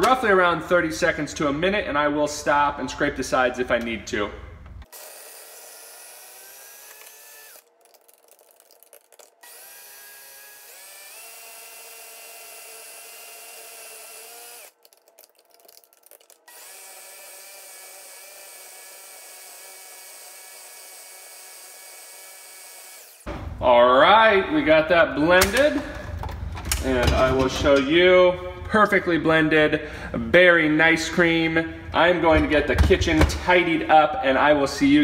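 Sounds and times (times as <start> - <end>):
blender motor whine: 4.9 - 7.7, 9.4 - 14.8, 16.5 - 23.3.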